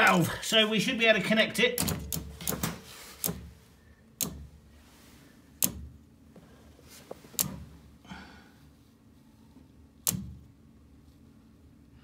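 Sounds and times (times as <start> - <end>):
sharp knocks and clicks: 1.8 - 3.6.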